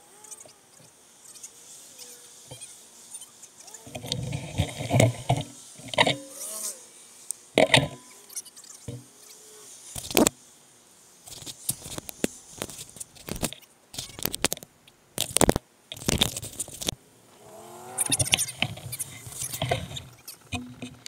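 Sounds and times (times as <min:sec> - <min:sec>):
short wavering pitched sound: 0:17.4 - 0:18.4.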